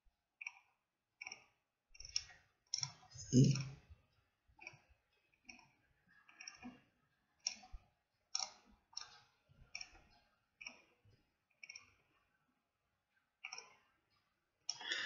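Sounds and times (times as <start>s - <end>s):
computer mouse clicks: 8.4s - 10.9s.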